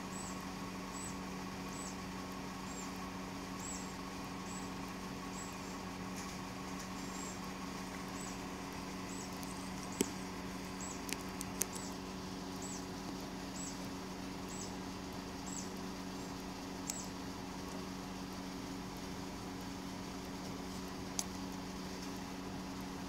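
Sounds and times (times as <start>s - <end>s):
low machine hum: 0.0s - 23.0s
sharp clicks: 11.0s - 11.9s.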